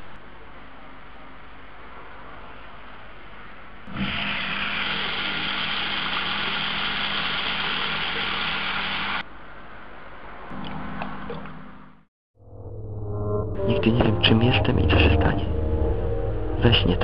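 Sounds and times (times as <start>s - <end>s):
tap water running into tub: 3.9s - 9.2s
low pipe hum: 12.4s - 17.0s.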